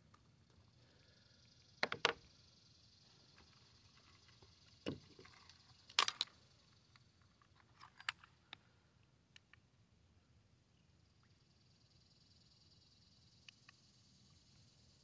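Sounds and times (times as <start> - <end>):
fishing gear clicks and knocks: 3.4 - 6.4, 7.0 - 8.6.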